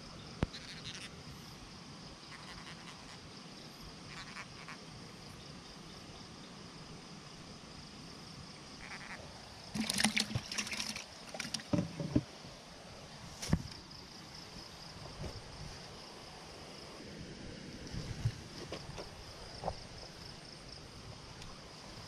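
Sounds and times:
fish splashing in a bucket: 0:09.6 - 0:12.2.

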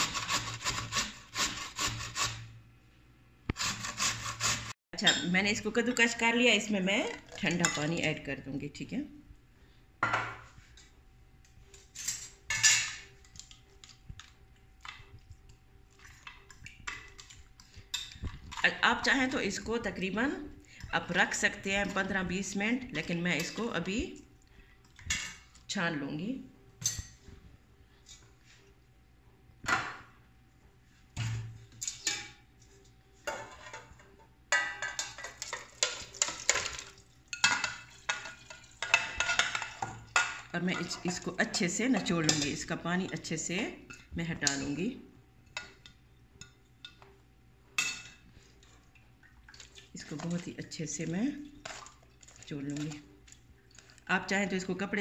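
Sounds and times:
bowls and utensils clattering: 0:07.0 - 0:08.1, 0:11.6 - 0:15.3, 0:15.9 - 0:18.9, 0:31.2 - 0:44.8, 0:49.5 - 0:54.1.

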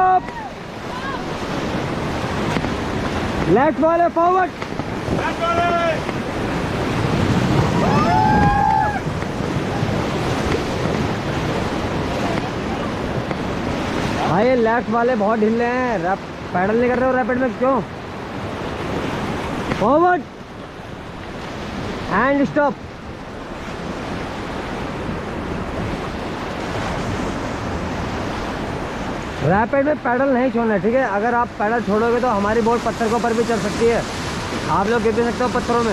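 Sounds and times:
wind buffeting microphone: 0:00.0 - 0:16.6, 0:17.8 - 0:29.6
rushing whitewater: 0:00.0 - 0:35.9
person shouting: 0:07.8 - 0:09.1.

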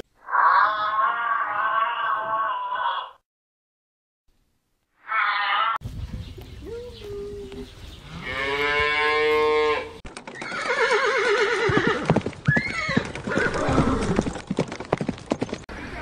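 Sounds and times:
cow mooing: 0:08.2 - 0:10.0
horse whinnying: 0:09.5 - 0:14.4.

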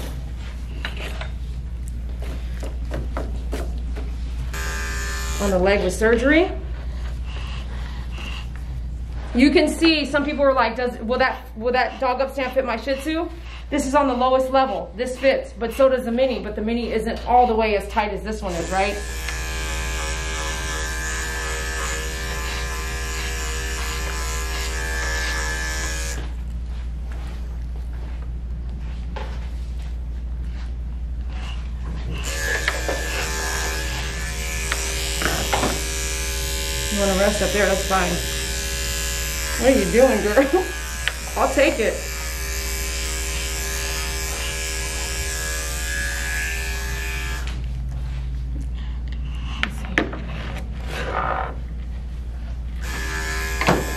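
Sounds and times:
electric dog clippers running: 0:04.5 - 0:06.4, 0:18.4 - 0:26.4, 0:32.1 - 0:47.7, 0:52.8 - 0:53.9.

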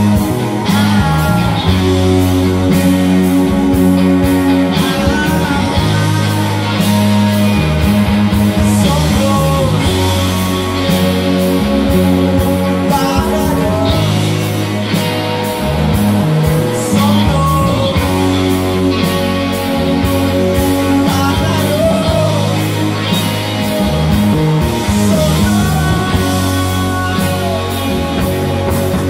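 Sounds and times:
man singing: 0:00.0 - 0:02.6, 0:04.2 - 0:07.6, 0:08.5 - 0:14.7, 0:16.6 - 0:19.1, 0:20.0 - 0:23.0, 0:24.8 - 0:29.0
bass guitar: 0:00.0 - 0:29.0
electric guitar chords: 0:00.0 - 0:29.0.

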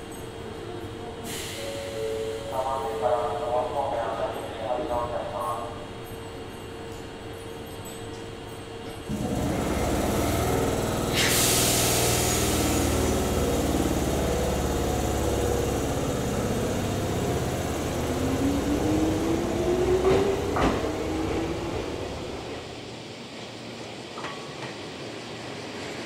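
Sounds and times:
electric train humming and whining: 0:00.0 - 0:26.0
air hiss: 0:11.0 - 0:13.2
train wheel knocks: 0:20.0 - 0:20.9.

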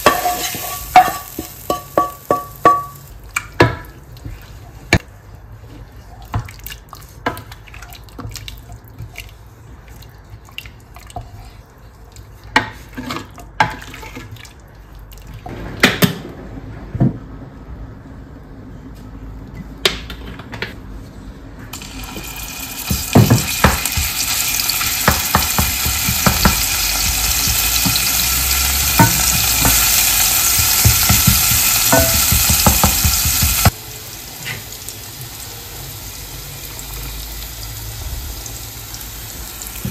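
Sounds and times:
dishes and utensils clinking: 0:00.0 - 0:03.0
tap running into sink: 0:22.8 - 0:24.2.

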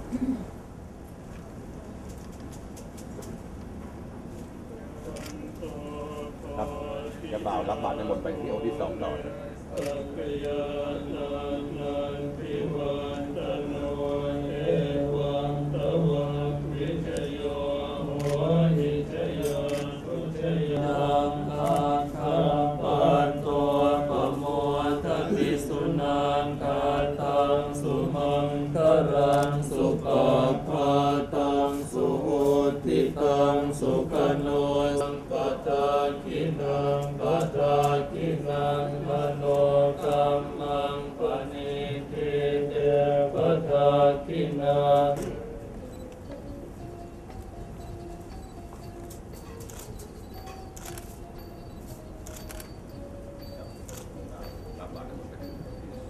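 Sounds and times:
monks chanting in unison: 0:05.3 - 0:45.8.

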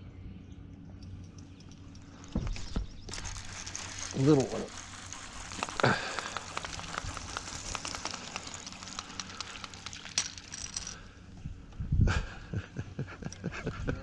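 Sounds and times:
fishing reel clicking: 0:03.1 - 0:11.0
fish splashing: 0:03.4 - 0:10.2.

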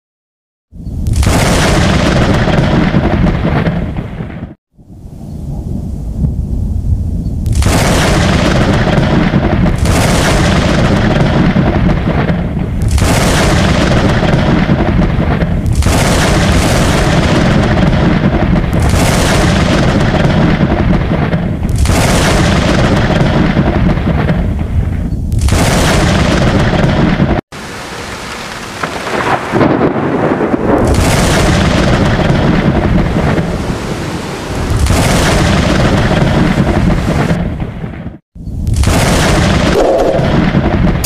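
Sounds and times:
heavy thunder rumble: 0:01.0 - 0:04.6, 0:05.5 - 0:41.0
thunderclaps: 0:01.0 - 0:04.6, 0:05.5 - 0:41.0.

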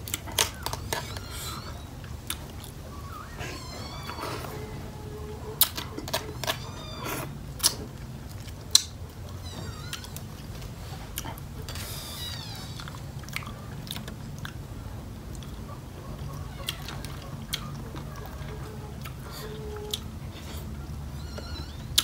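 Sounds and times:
chewing and biting: 0:00.0 - 0:02.8, 0:05.6 - 0:14.6, 0:16.6 - 0:20.8.

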